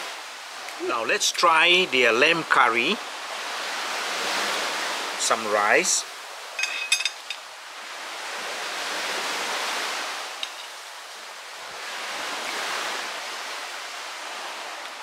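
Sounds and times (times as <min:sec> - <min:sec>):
sea waves washing ashore: 0:00.0 - 0:15.0.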